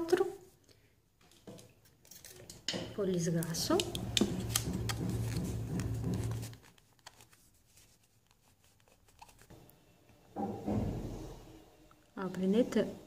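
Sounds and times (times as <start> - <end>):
scratchy rubbing and clicks: 3.6 - 9.5.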